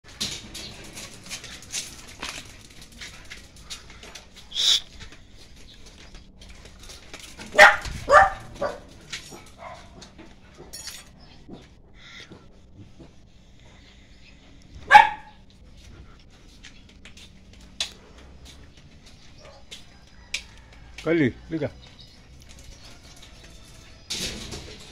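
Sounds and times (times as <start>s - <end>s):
dog yelp: 7.5s - 8.9s, 14.9s - 15.4s
small dog barking: 7.5s - 8.9s, 14.9s - 15.4s.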